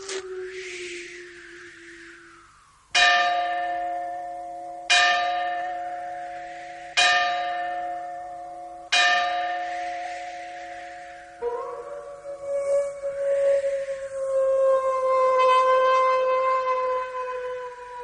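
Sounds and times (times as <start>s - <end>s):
large bell tolling: 3.0s - 12.6s.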